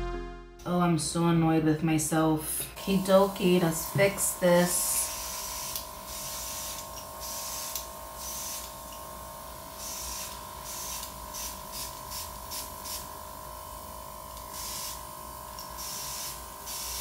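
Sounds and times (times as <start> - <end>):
airbrush hissing bursts: 2.8 - 8.8, 9.7 - 13.1, 14.5 - 15.0, 15.8 - 17.0
small compressor whine: 2.8 - 17.0.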